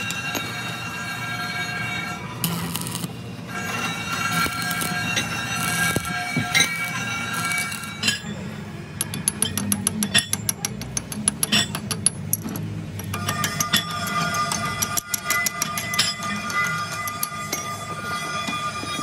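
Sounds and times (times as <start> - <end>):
welding arc buzzing: 0.0 - 8.2.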